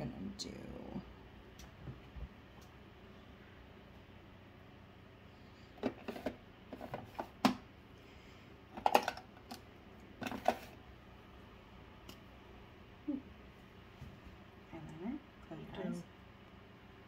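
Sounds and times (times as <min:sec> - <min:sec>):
plastic items clicking and clattering: 0:08.7 - 0:09.6, 0:10.2 - 0:10.8.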